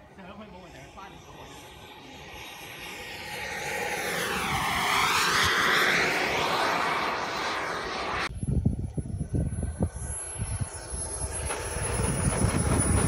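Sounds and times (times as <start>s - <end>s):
model jet passing with rushing roar: 0.0s - 13.0s
wind buffeting microphone: 8.2s - 13.0s.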